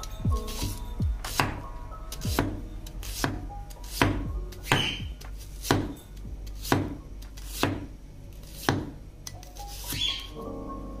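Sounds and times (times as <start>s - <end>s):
knife chopping onto wooden board: 1.3s - 1.6s, 2.2s - 5.9s, 6.5s - 9.0s.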